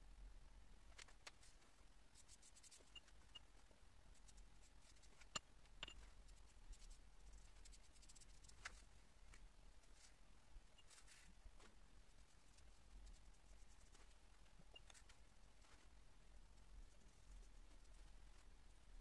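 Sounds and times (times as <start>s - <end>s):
brush strokes on paper: 1.4s - 3.1s, 6.0s - 9.0s, 10.8s - 14.2s.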